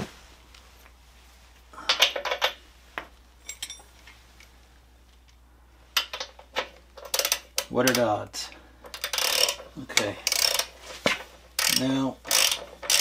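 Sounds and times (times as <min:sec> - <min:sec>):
metal tools clanking: 0:03.4 - 0:04.1.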